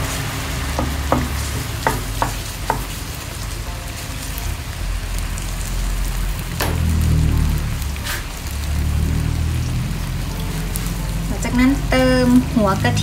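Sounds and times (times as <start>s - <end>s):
curry paste sizzling in a frying pan: 0.0s - 13.0s
wooden spatula scraping a pan: 8.0s - 8.4s.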